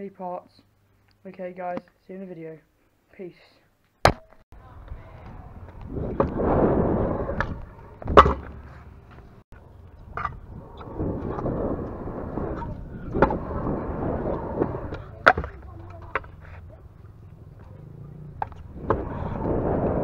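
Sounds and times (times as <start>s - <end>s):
scooter wheels rolling on concrete: 4.5s - 20.0s
scooter clacking on concrete: 14.8s - 19.1s.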